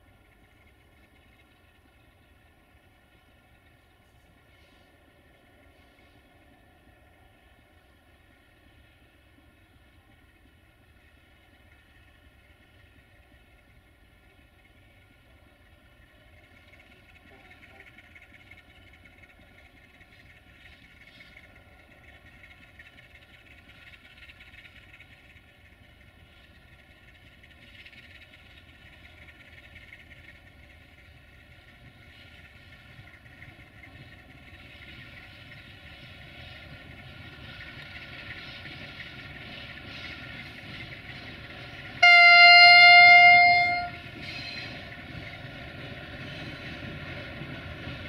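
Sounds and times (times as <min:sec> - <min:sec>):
diesel locomotive engine drone: 0:00.0 - 0:48.0.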